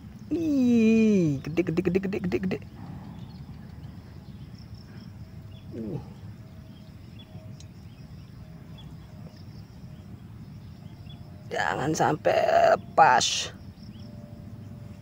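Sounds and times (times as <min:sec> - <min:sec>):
faint high chirps: 0:00.0 - 0:11.7
low steady rumble: 0:00.0 - 0:15.0.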